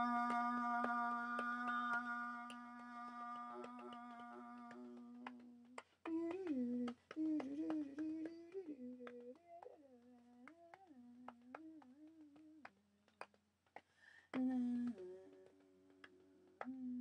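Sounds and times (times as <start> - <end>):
person humming: 0.0 - 12.5.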